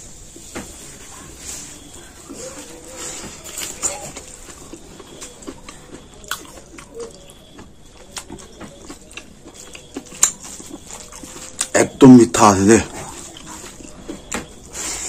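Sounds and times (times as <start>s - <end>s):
wet chewing: 0.3s - 15.0s.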